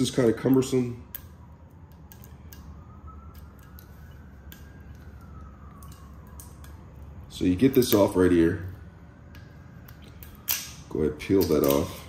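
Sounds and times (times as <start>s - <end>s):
faint rising and falling tone: 0.0s - 11.2s
low steady hum: 0.0s - 12.0s.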